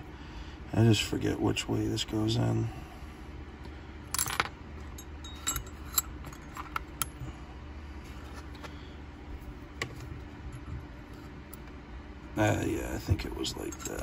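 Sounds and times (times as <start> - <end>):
steady low hum: 0.0 - 14.0
small steel parts clicking: 4.1 - 7.2, 13.6 - 14.0.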